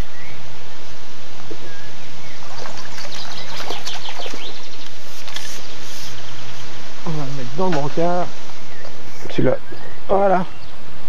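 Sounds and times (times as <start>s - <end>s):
birds chirping: 0.0s - 0.8s, 1.4s - 11.0s
water splashing: 2.2s - 8.2s
steady hiss: 4.2s - 11.0s.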